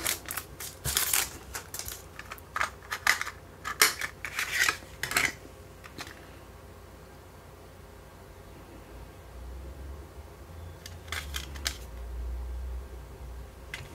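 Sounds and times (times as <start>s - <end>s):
plastic case clicks and rustles: 0.0s - 6.2s.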